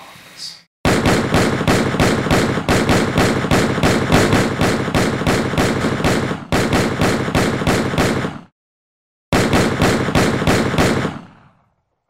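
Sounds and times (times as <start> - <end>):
rapid gunfire: 0.8 - 8.6, 9.3 - 11.7.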